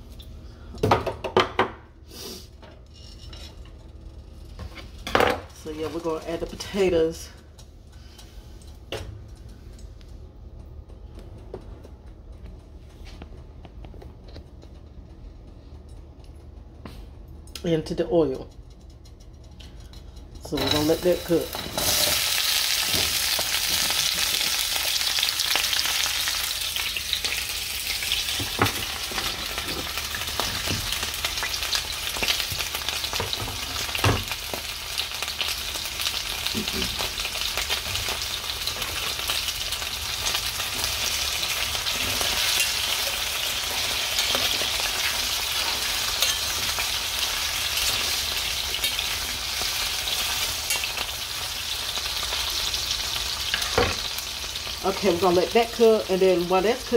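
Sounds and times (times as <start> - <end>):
food sizzling in hot oil: 20.6 - 56.9.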